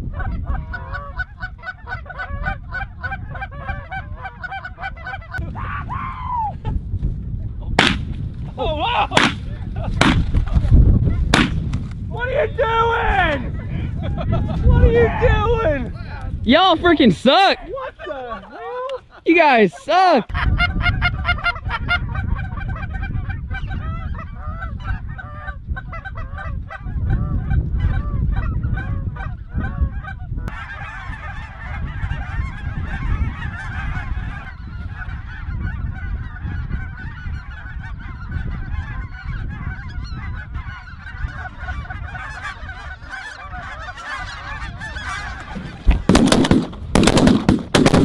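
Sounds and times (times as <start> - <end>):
geese honking in flight: 0.1 - 5.4, 20.5 - 46.1.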